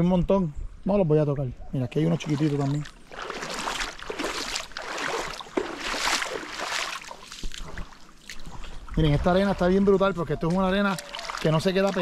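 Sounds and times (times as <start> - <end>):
small waves washing in: 2.2 - 9.8, 10.9 - 12.0.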